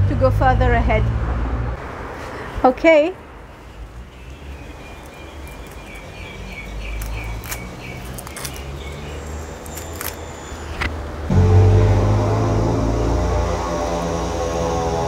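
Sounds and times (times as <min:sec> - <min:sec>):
bird chirping: 0:03.5 - 0:10.9
foil crinkles and clicks: 0:07.0 - 0:10.2
loud steady drone: 0:10.8 - 0:15.0
low rumble: 0:11.2 - 0:15.0.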